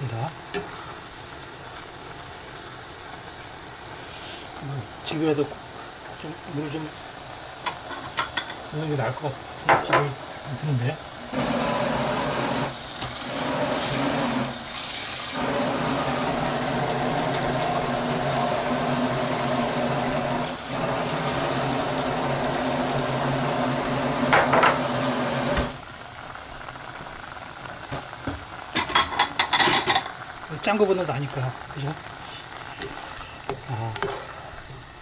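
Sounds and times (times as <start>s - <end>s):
water running: 8.7s - 25.8s.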